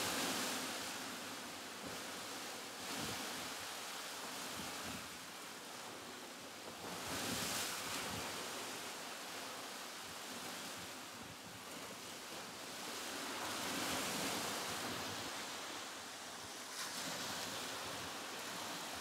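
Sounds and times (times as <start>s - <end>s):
sea waves washing: 0.0s - 19.0s.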